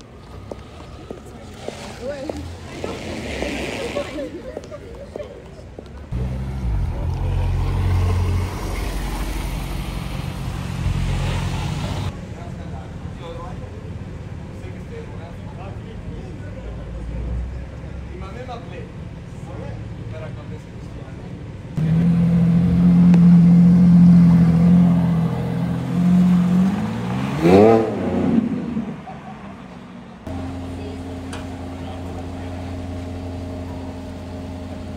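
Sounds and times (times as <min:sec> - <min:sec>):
car engine running: 0:30.3 - 0:34.9.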